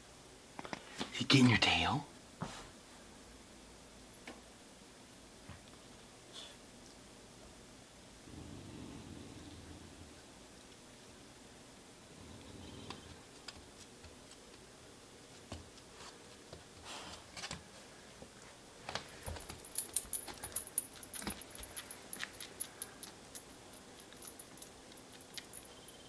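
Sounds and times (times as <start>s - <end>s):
dog tags jingling: 19.2s - 26.0s.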